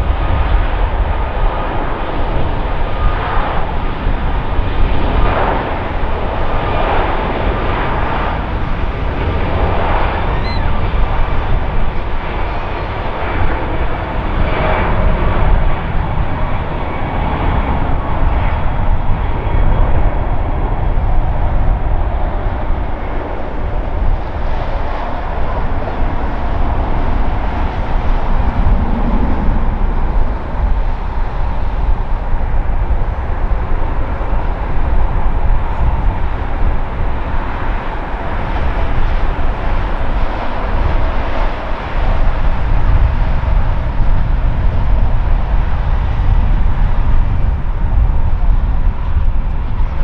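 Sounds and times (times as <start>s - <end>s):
jet engines at takeoff thrust: 0.0s - 50.0s.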